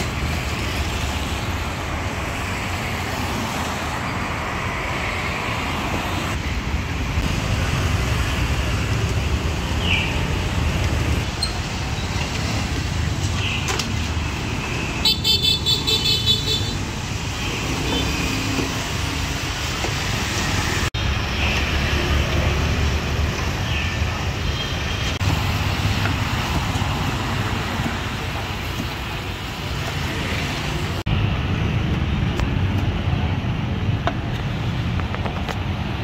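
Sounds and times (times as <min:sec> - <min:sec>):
street traffic rumble: 0:00.0 - 0:36.0.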